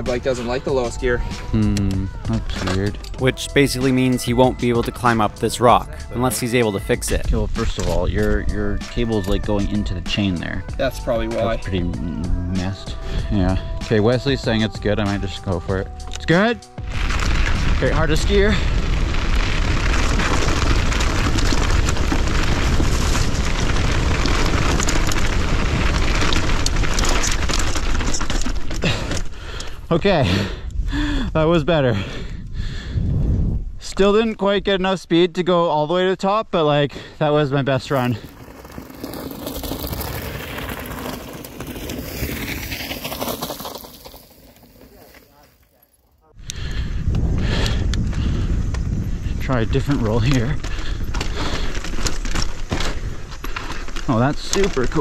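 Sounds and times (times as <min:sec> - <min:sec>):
bike tyres crunching on gravel: 0:02.1 - 0:11.8, 0:13.5 - 0:30.4, 0:37.2 - 0:55.0
wind buffeting microphone: 0:16.8 - 0:34.7, 0:46.4 - 0:55.0.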